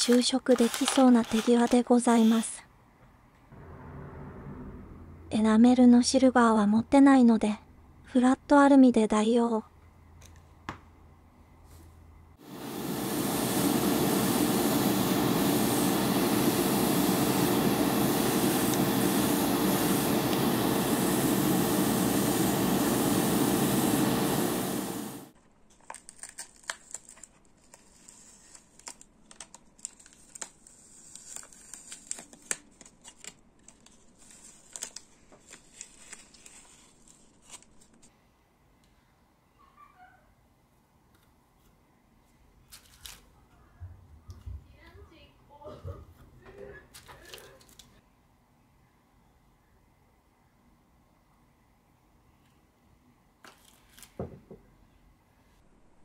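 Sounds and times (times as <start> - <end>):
paper crinkling: 0.0 - 1.8, 25.4 - 38.1, 42.6 - 43.3, 46.9 - 48.0
motor hum: 3.5 - 5.6
spray equipment hissing: 12.4 - 25.3.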